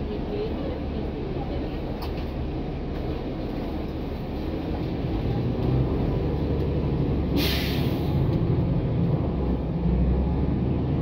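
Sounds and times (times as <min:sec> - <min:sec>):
bus engine rumble: 0:00.0 - 0:11.0.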